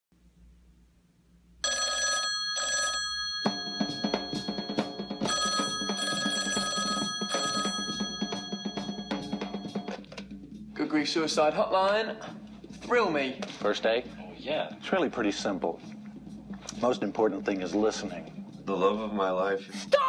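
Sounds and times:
telephone ringing: 0:01.6 - 0:10.1
music with drum beat: 0:03.4 - 0:20.0.

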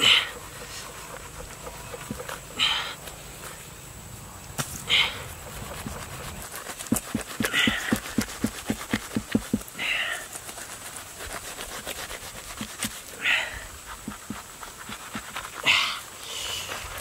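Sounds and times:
knife sawing through fruit: 0:04.9 - 0:17.0.

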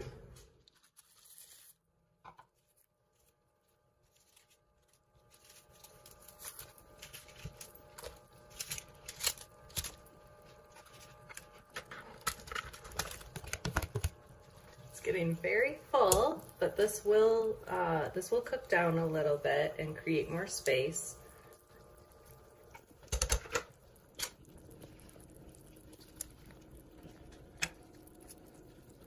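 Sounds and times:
ingredients clicking into pot: 0:22.7 - 0:24.4.

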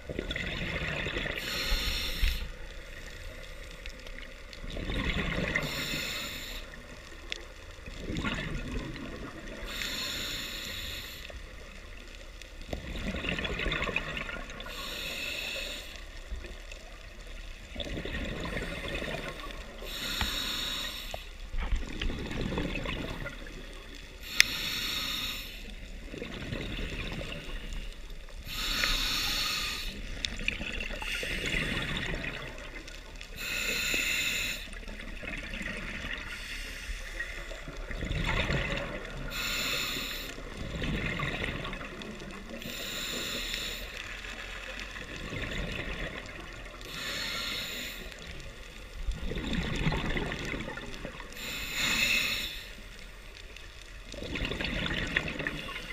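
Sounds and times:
regulator hissing inhale: 0:01.2 - 0:03.2, 0:05.5 - 0:07.0, 0:09.6 - 0:11.6, 0:14.6 - 0:16.3, 0:18.5 - 0:21.5, 0:24.2 - 0:25.9, 0:27.4 - 0:30.4, 0:31.0 - 0:32.0, 0:33.2 - 0:35.0, 0:36.3 - 0:37.6, 0:39.1 - 0:40.6, 0:42.6 - 0:44.8, 0:46.8 - 0:48.9, 0:51.2 - 0:53.2.

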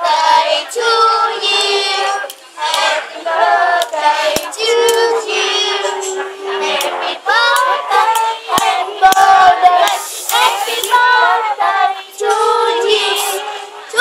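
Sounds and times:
children and woman singing: 0:00.0 - 0:14.0
hand claps: 0:03.8 - 0:05.1, 0:06.1 - 0:11.0.

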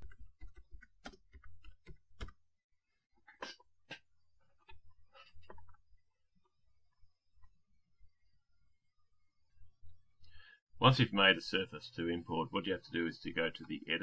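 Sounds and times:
keyboard typing: 0:00.0 - 0:02.5.

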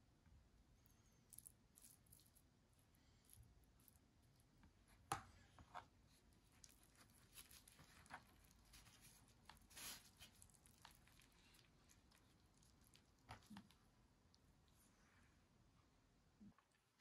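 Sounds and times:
flatbread crinkling and rustling: 0:01.0 - 0:14.0.

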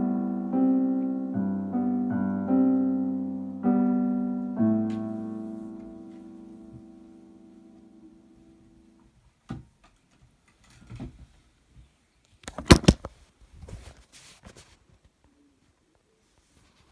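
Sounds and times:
electronic keyboard chord: 0:00.0 - 0:09.0.

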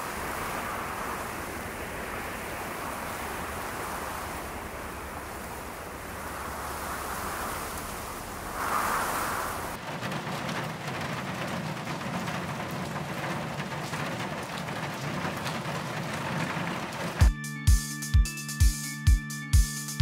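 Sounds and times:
rushing noise: 0:00.0 - 0:10.2
rain pattering on a window: 0:00.0 - 0:17.3
music with deep drum beat: 0:17.2 - 0:20.0.

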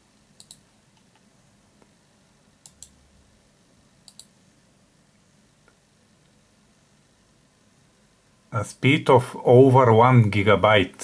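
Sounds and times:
mouse buttons clicking: 0:00.4 - 0:01.2, 0:02.6 - 0:03.0, 0:04.0 - 0:04.3.

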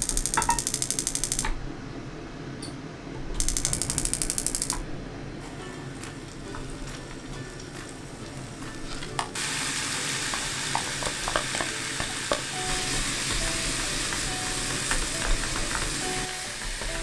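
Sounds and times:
gas burner lighting: 0:03.4 - 0:17.0.

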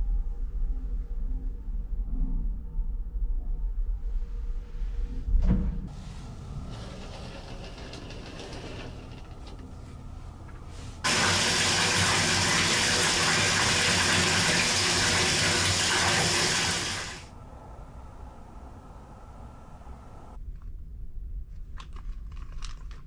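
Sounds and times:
tap water pouring into bathtub: 0:11.0 - 0:17.3.

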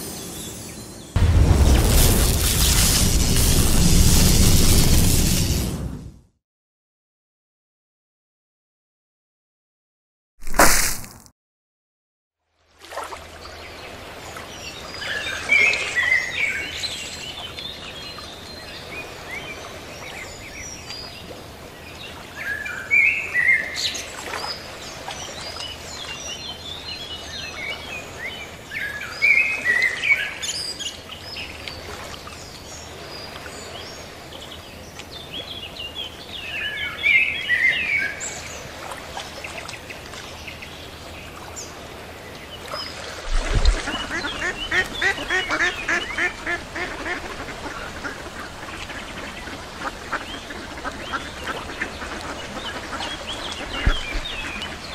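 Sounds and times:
low thump: 0:01.2 - 0:03.8
ducks quacking rapidly: 0:43.7 - 0:53.9.

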